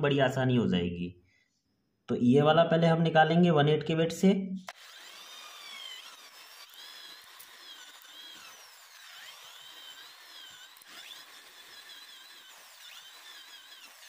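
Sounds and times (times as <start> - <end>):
electric drill boring into wood: 4.7 - 14.0.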